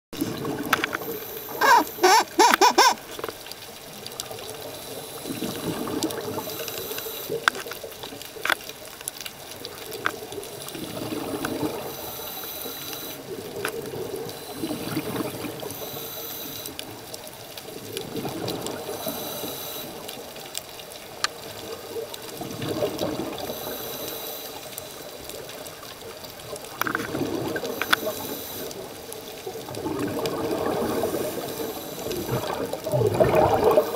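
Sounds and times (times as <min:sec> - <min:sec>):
exhaled bubbles underwater: 0:04.1 - 0:07.4, 0:09.6 - 0:12.1, 0:13.2 - 0:16.0, 0:17.6 - 0:19.4, 0:21.4 - 0:23.8, 0:25.0 - 0:33.9
regulator inhale hiss: 0:06.4 - 0:07.4, 0:11.8 - 0:13.2, 0:15.6 - 0:16.8, 0:18.8 - 0:20.1, 0:23.4 - 0:25.0, 0:27.6 - 0:28.9, 0:30.9 - 0:32.4.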